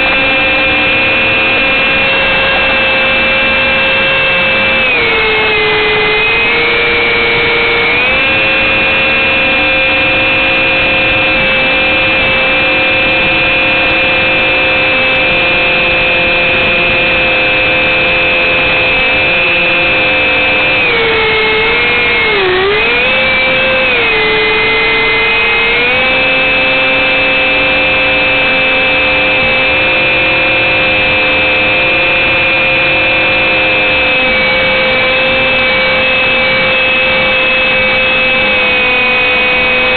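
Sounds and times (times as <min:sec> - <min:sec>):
ducted fans whining: 0:00.0 - 0:39.9.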